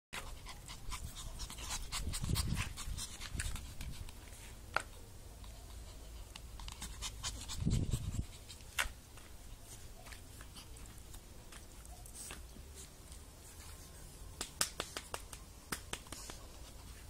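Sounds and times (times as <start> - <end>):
puppies panting: 0.2 - 4.2, 5.4 - 8.8.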